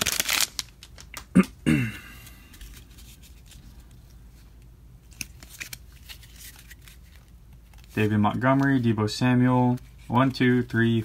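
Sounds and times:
foil wrapper crinkling: 0.0s - 1.3s
handling stack of cards: 0.0s - 11.0s.

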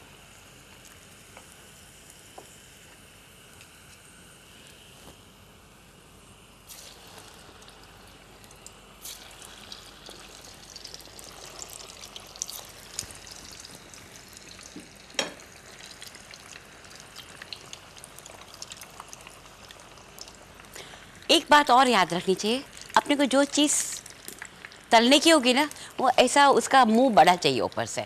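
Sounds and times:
food sizzling in hot oil: 0.1s - 4.9s, 6.5s - 28.0s.

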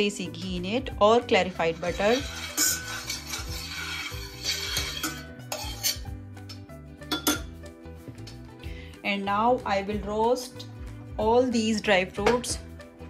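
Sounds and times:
background music: 0.0s - 13.0s
utensils clinking on frying pan: 1.5s - 7.6s.

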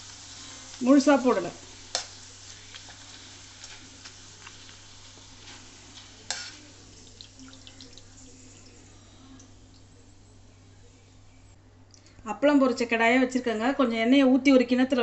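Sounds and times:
food frying in hot oil: 0.0s - 9.9s.

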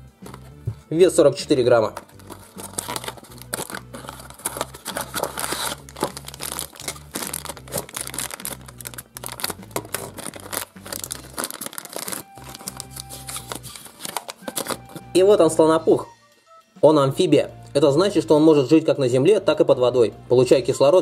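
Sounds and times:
cardboard box opening: 1.9s - 15.1s
plastic packet crinkling: 1.9s - 15.2s.

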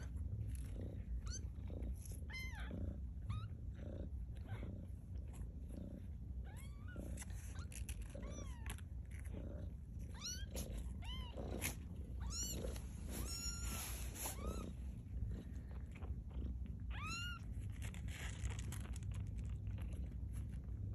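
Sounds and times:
kittens mewing: 0.0s - 18.8s
low purr: 0.0s - 20.9s.

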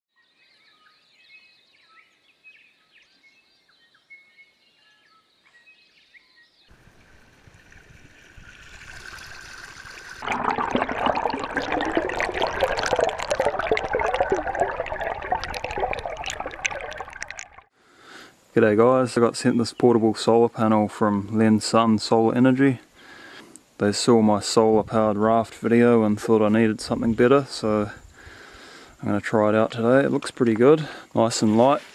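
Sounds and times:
propeller churning water: 6.8s - 17.7s.

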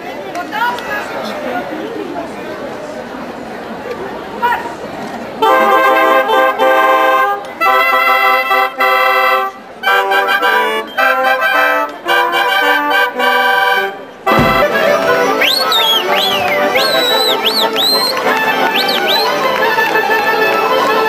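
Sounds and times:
wind band playing a tune: 5.4s - 21.0s.

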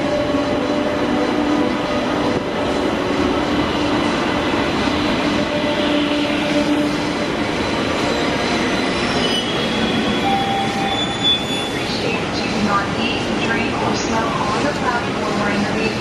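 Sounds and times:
train wheels rumbling on rail: 0.0s - 16.0s
high wheel squeal: 7.5s - 11.9s.

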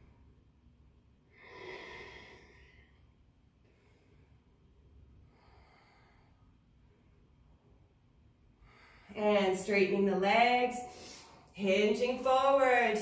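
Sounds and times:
woman breathing deeply: 1.2s - 7.3s, 8.5s - 9.2s, 10.8s - 11.5s.

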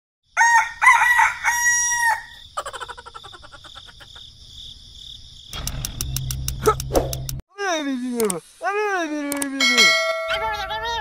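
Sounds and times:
rooster crowing: 0.3s - 2.5s.

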